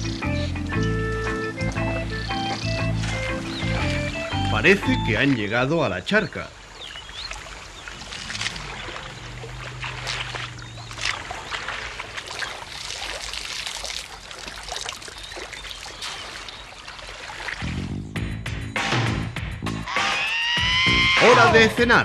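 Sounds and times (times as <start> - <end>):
water splashing from elephant trunks: 0.0 - 5.8, 6.5 - 18.1.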